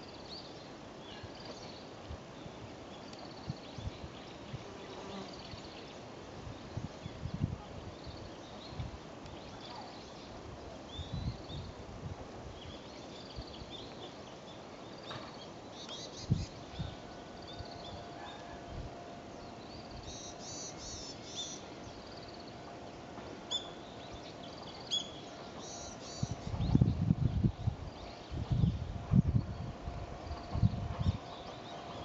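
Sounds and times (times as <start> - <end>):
small birds chirping: 6.8 - 11.8
distant train hum: 7.9 - 32.0.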